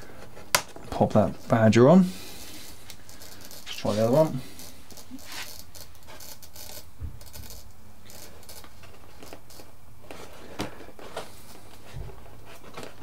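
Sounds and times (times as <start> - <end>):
plastic parts clicking and scraping: 2.8 - 11.3.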